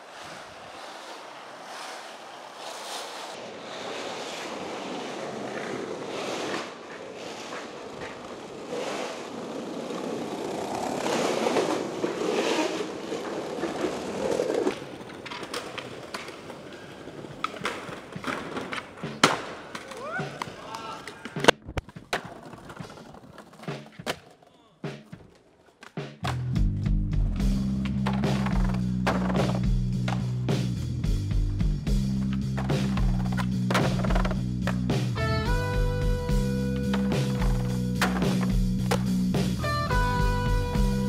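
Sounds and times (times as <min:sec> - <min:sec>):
skateboard wheels rolling on asphalt: 0:00.0 - 0:26.5, 0:27.4 - 0:41.0
skateboard clacking on stone ledge: 0:10.8 - 0:26.4, 0:32.2 - 0:34.9, 0:36.8 - 0:39.1.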